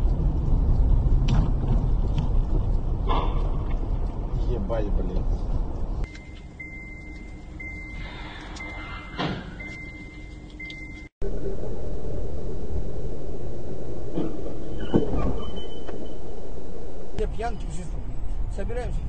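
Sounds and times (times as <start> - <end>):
car road rumble: 0.0 - 19.0
high electronic beep: 6.1 - 11.1.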